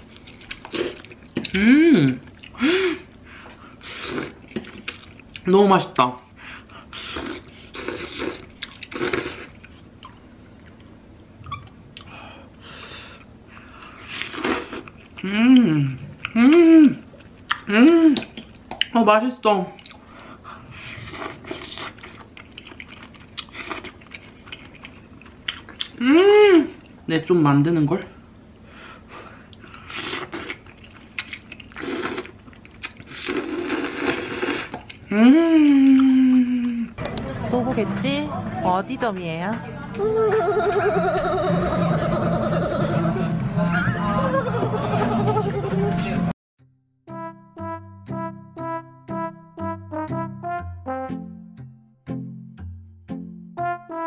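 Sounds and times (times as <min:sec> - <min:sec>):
person chewing: 0:00.0 - 0:05.5, 0:06.7 - 0:12.4, 0:13.2 - 0:19.0, 0:19.8 - 0:27.0, 0:29.5 - 0:36.5
person slurping noodles: 0:03.8 - 0:04.8, 0:06.9 - 0:09.6, 0:14.0 - 0:14.9, 0:20.8 - 0:22.2, 0:29.8 - 0:30.6, 0:31.7 - 0:32.4, 0:33.0 - 0:34.9
chewing with wet mouth clicks: 0:08.4 - 0:12.1, 0:16.2 - 0:19.0, 0:21.4 - 0:26.0, 0:29.5 - 0:33.4.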